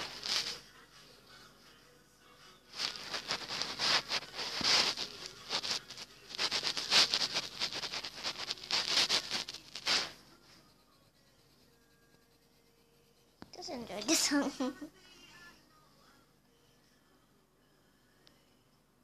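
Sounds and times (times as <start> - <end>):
drawing tool scratching paper: 2.8 - 13.4.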